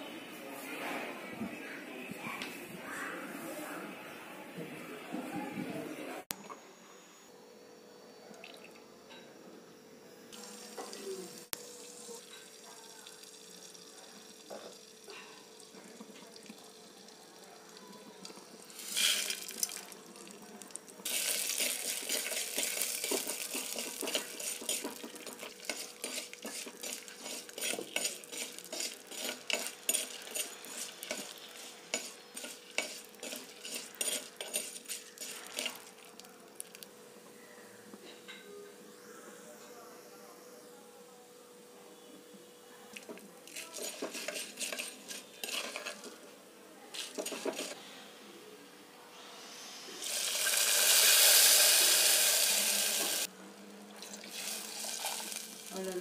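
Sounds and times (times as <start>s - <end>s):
food sizzling in hot oil: 10.3s - 36.8s, 43.0s - 46.2s, 46.9s - 47.8s, 50.0s - 53.3s, 54.0s - 56.0s
spoon scraping a clay pot: 21.1s - 36.0s, 43.0s - 46.2s, 46.9s - 47.8s.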